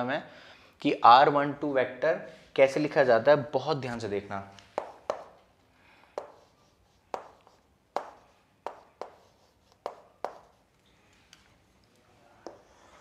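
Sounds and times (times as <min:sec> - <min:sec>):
chalk tapping on chalkboard: 0:04.7 - 0:05.5, 0:06.1 - 0:10.7, 0:12.4 - 0:13.0.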